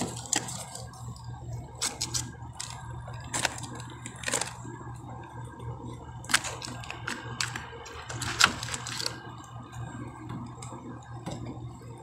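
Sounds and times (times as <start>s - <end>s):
plastic packaging crinkling: 0.0s - 4.9s, 6.2s - 9.4s
steady low hum: 0.0s - 12.0s.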